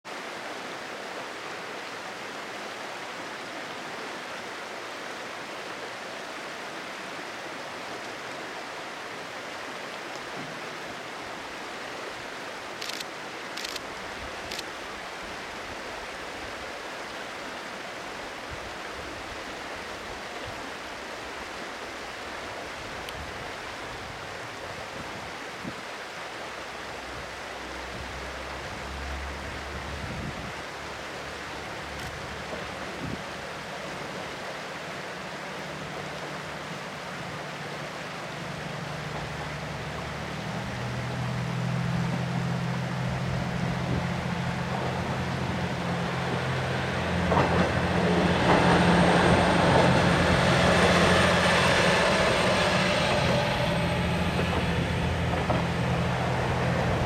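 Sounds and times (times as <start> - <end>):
stream rushing: 0.0 - 57.0
diesel railcar rumble: 27.3 - 34.3, 35.2 - 57.0.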